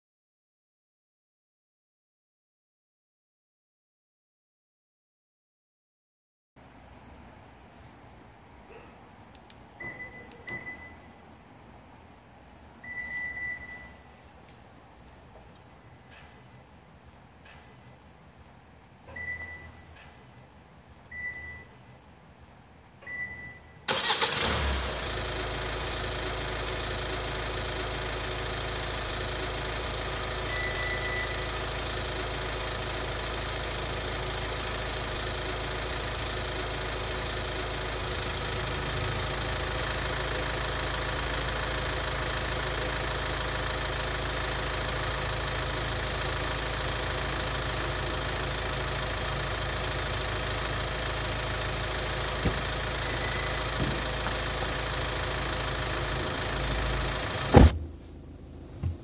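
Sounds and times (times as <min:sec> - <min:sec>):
car engine idling: 0:23.9 - 0:59.0.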